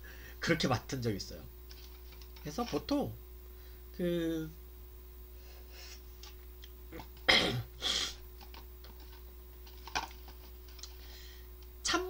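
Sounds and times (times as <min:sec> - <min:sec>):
breathy exhale: 0:11.0 - 0:11.5.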